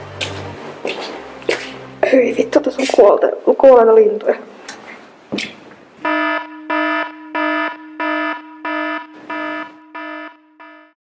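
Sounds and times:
alarm buzzing beeps: 0:06.0 - 0:11.0.

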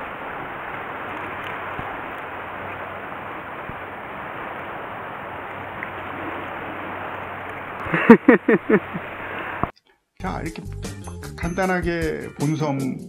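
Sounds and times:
wind on microphone: 0:00.0 - 0:08.0
shallow water rushing: 0:00.0 - 0:09.7.

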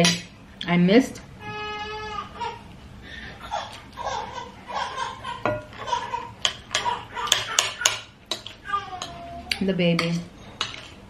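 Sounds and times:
fork clinking on a plate: 0:06.4 - 0:11.0.

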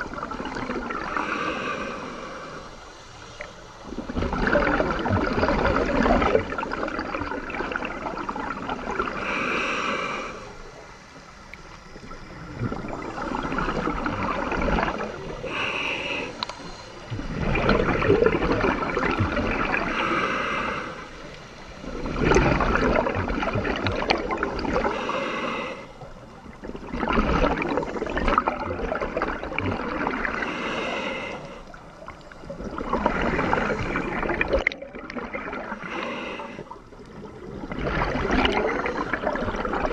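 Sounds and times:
rush of exhaled bubbles: 0:00.0 - 0:02.7, 0:03.4 - 0:10.5, 0:11.9 - 0:16.4, 0:17.1 - 0:39.9
inhale through diving regulator: 0:00.9 - 0:03.6, 0:09.1 - 0:10.7, 0:15.2 - 0:17.4, 0:19.7 - 0:21.4, 0:24.7 - 0:26.1, 0:30.0 - 0:31.8, 0:35.5 - 0:36.9.

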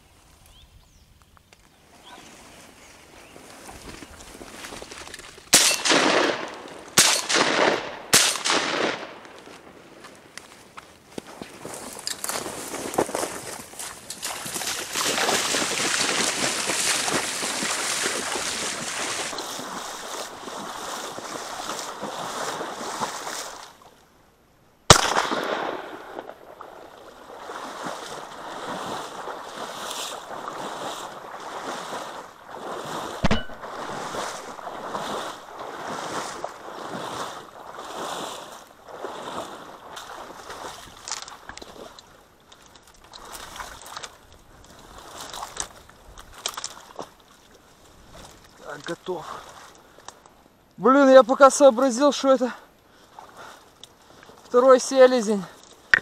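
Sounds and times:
wind: 0:00.0 - 0:56.0
sharp loud crack: 0:05.5 - 0:09.2, 0:24.9 - 0:26.3, 0:33.2 - 0:34.1
rushing water: 0:13.2 - 0:24.0, 0:26.6 - 0:42.0.

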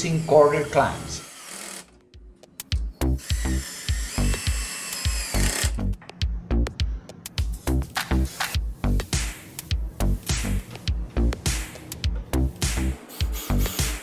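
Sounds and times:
drill driving screw into wood: 0:00.0 - 0:02.0, 0:03.2 - 0:05.8
electronic music with kick drum: 0:05.8 - 0:14.0.

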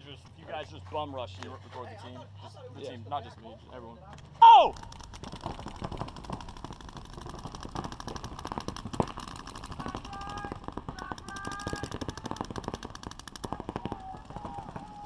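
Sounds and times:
paintball guns firing: 0:04.2 - 0:15.0.

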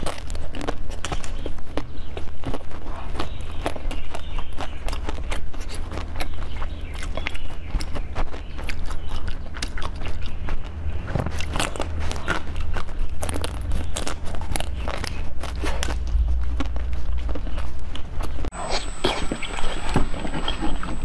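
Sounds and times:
wet mouth clicks eating: 0:00.0 - 0:21.0.

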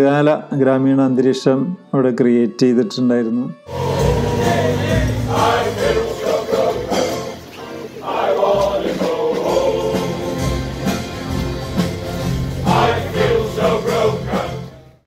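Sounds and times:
men's choir singing over loudspeakers: 0:03.7 - 0:11.0, 0:12.4 - 0:14.9.

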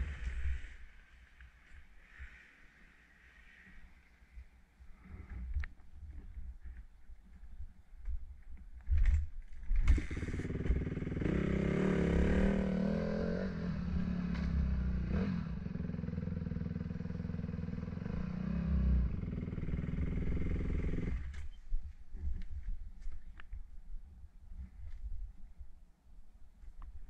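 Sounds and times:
dirt bike engine revving: 0:09.9 - 0:21.3.

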